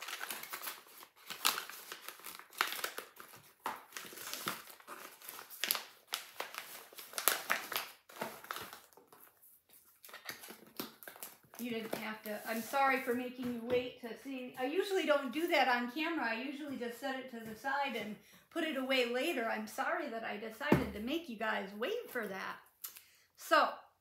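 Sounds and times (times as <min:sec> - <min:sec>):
packaging crinkling: 0:00.0 - 0:12.8.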